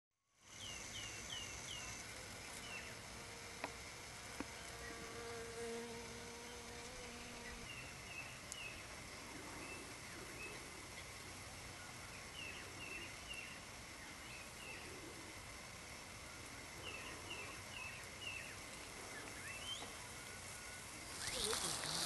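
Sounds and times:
flying insect buzzing: 0.4 - 10.9, 20.9 - 22.0
small birds chirping: 6.4 - 15.4, 16.2 - 22.0.

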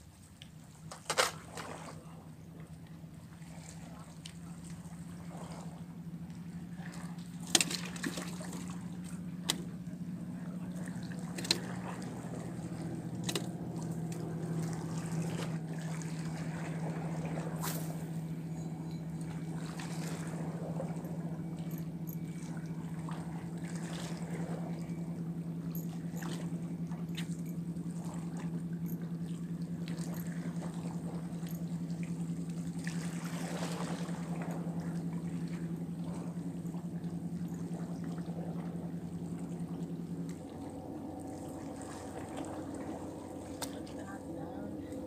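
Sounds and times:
low motor hum: 0.0 - 45.0
water splashing against rocks: 6.8 - 9.7.

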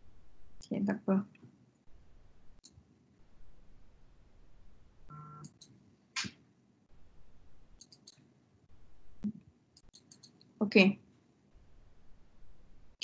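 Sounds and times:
brief computer tone: 5.1 - 5.5
computer mouse clicks: 7.8 - 8.2, 9.2 - 10.5.

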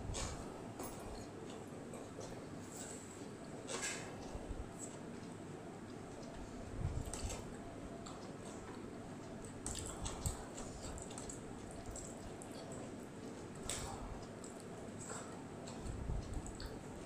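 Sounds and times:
wet chewing and mouth sounds: 9.4 - 17.0.

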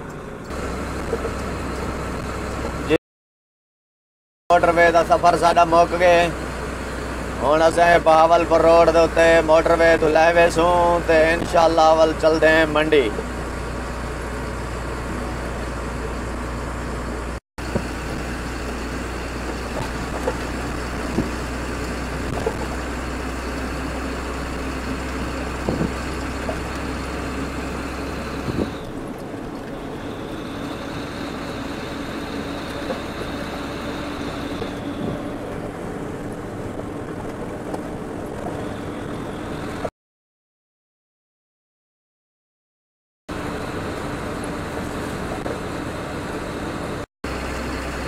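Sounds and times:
truck engine and road noise: 0.0 - 3.0, 4.5 - 39.9, 43.3 - 48.0
sharp knocks from cab: 25.6 - 26.0.

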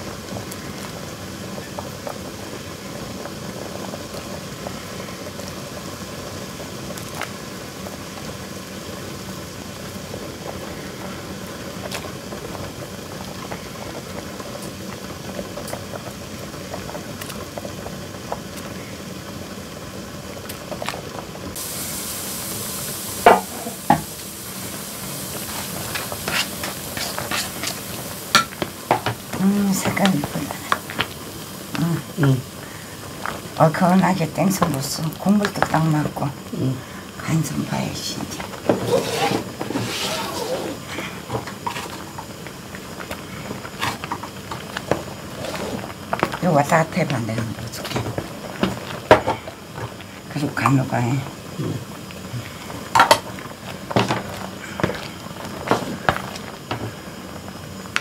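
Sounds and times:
broth boiling and bubbling: 0.0 - 58.0
bright hiss: 21.5 - 47.1.

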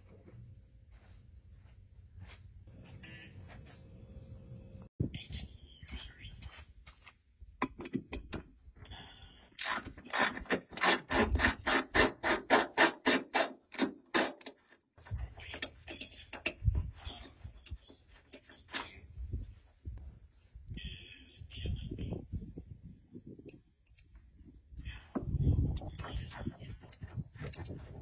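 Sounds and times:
hand tool rasping strokes: 9.6 - 14.6.

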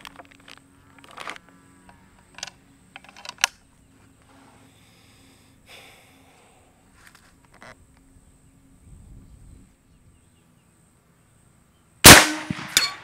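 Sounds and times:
air rifle metallic clicks: 0.0 - 3.7
soft rustle: 6.9 - 8.1.

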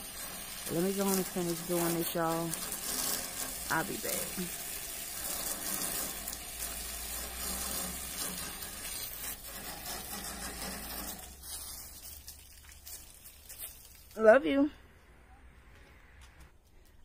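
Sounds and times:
water spraying from hose: 0.0 - 14.7
low hum: 14.6 - 16.7.

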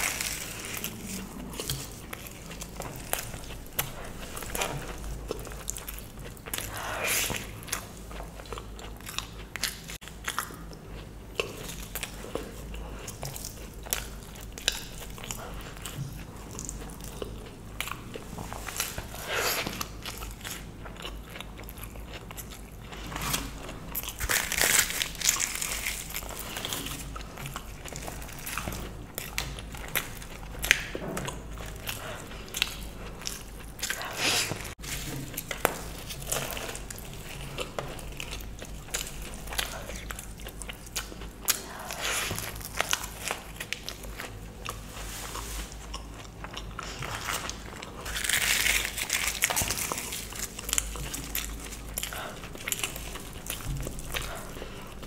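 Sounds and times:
chewing and biting bread: 0.0 - 55.0.

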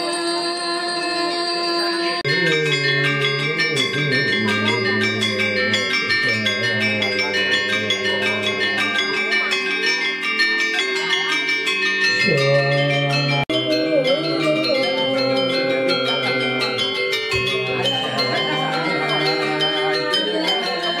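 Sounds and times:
metallophones ringing: 1.0 - 21.0
low voice chanting: 2.0 - 9.8, 12.1 - 21.0.

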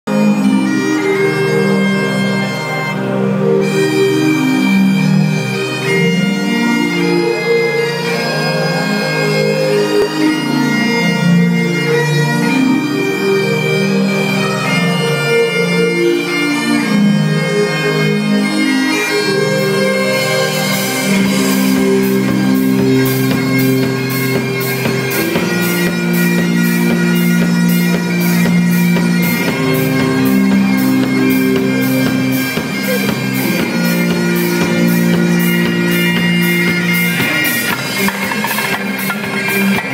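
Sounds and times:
bagpipes playing a melody: 0.1 - 39.9
bass guitar: 0.1 - 39.9
steady drum beat: 21.4 - 39.9.

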